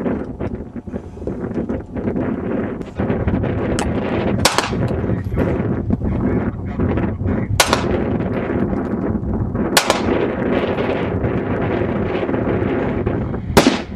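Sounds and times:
steady rushing noise: 0.0 - 13.9
pistol shots: 4.4 - 4.9, 7.6 - 8.1, 9.8 - 10.2, 13.6 - 13.9.

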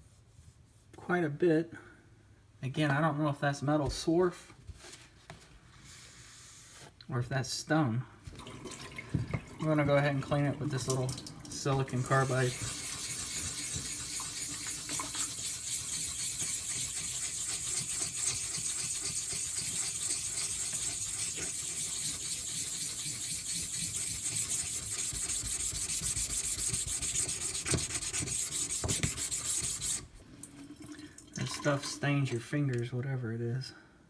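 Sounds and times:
block scrubbing on sharpening stone: 12.2 - 30.1.

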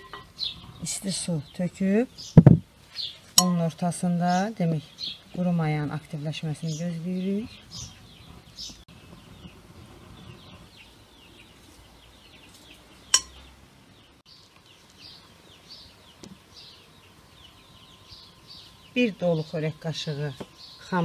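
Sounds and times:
small birds chirping: 0.0 - 21.0
metal clinking on glass: 13.1 - 13.4.

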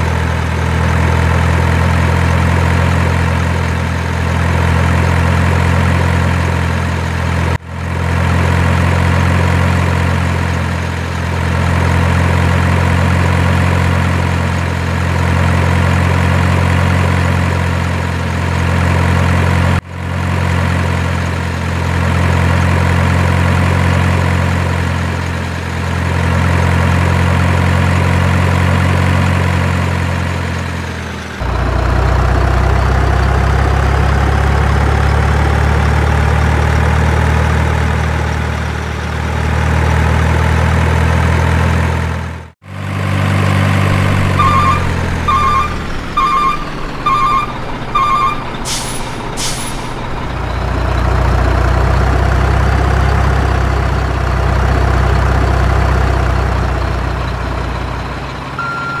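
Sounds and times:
truck diesel engine idling: 0.0 - 59.0
reversing beeps: 43.8 - 50.0, 58.5 - 59.0
air-brake hisses: 48.6 - 50.0.

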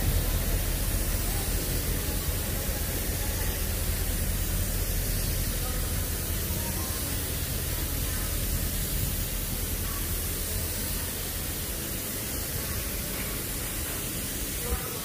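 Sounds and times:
low rumble: 0.0 - 6.3
faint distant voices: 0.0 - 15.0
street hiss: 0.0 - 15.0.

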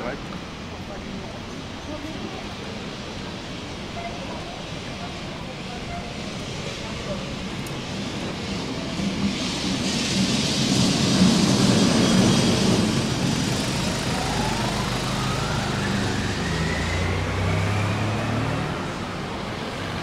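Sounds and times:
rising whine: 10.7 - 19.9
vehicle passing by: 14.1 - 20.0.

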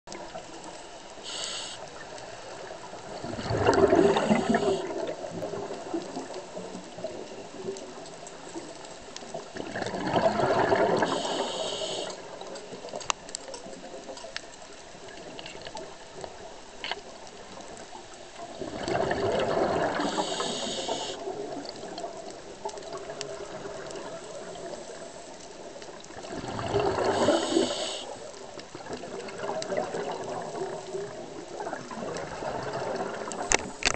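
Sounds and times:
low wash of water: 0.1 - 12.5, 17.3 - 33.9
diver breathing through regulator: 1.2 - 1.9, 3.6 - 5.0, 10.9 - 12.2, 20.0 - 21.2, 27.0 - 28.2
exhaled bubbles rushing: 2.6 - 7.6, 9.5 - 11.4, 18.5 - 24.7, 26.0 - 28.0, 28.8 - 33.5.

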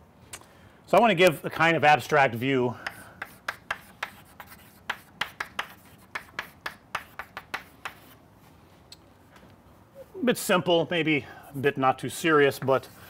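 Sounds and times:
chalk tapping and scratching on chalkboard: 2.3 - 8.2, 12.5 - 13.0.

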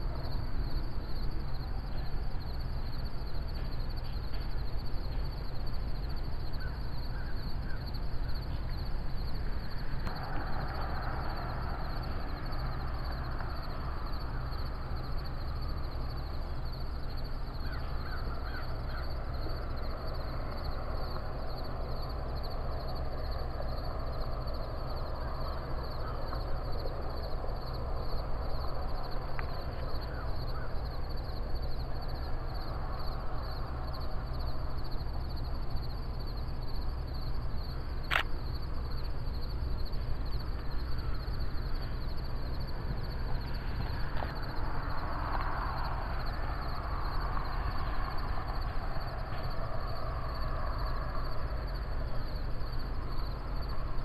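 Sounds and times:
pulsing insect chorus: 0.0 - 54.0
sharp click: 38.1 - 38.3.

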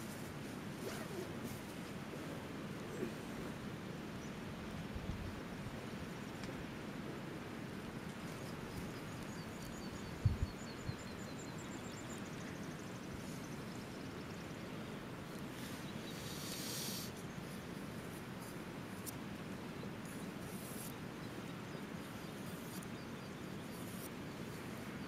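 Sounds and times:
outdoor background noise: 0.0 - 25.0
small bird calling: 15.6 - 17.6.

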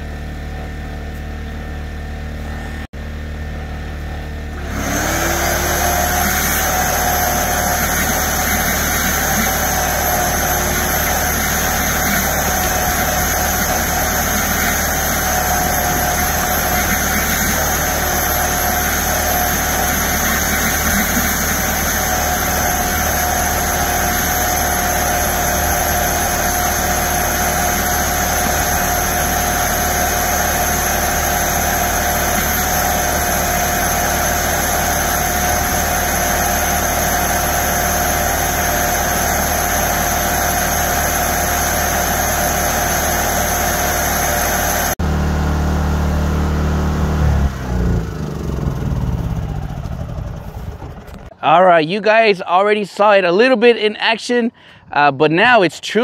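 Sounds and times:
machine drone with whine: 0.0 - 51.4.

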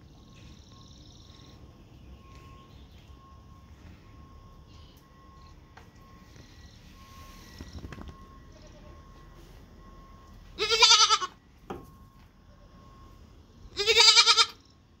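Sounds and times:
baby goat bleating: 10.6 - 11.4, 13.7 - 14.6.

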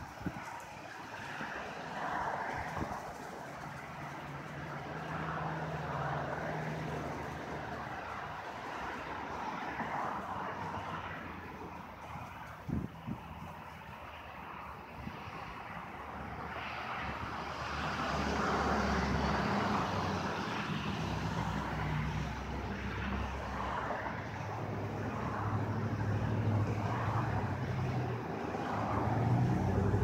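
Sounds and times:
engine humming: 24.4 - 30.0.

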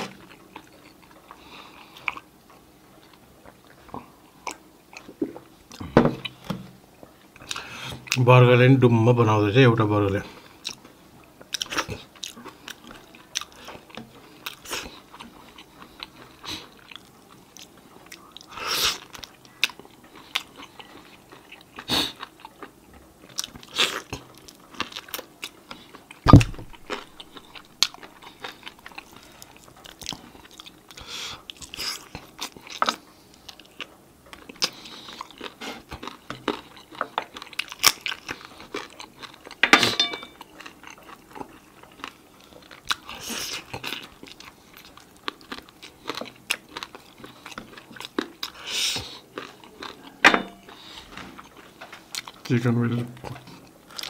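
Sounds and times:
person chewing chicken wings: 0.0 - 6.5, 7.4 - 8.2, 10.2 - 39.6, 40.3 - 52.5, 53.2 - 54.0
loud thump: 26.3 - 26.9.

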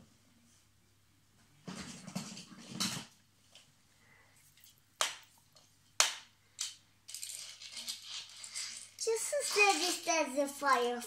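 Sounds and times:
toy car rolling across floor: 1.7 - 3.2, 7.1 - 10.9.

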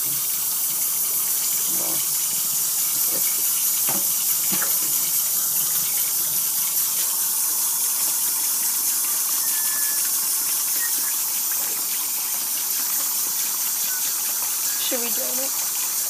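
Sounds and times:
tap running into metal sink: 1.4 - 7.1.

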